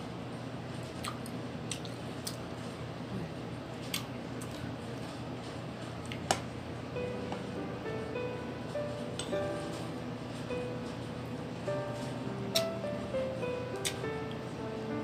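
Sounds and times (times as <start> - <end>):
chewing and mouth sounds: 1.0 - 2.4
soft background music: 6.9 - 15.0.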